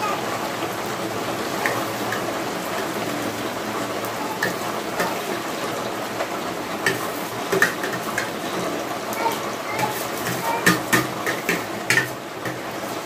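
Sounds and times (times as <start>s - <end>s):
rain falling: 0.0s - 13.0s
spoons clinking on steel plates: 4.3s - 5.3s, 6.8s - 12.6s.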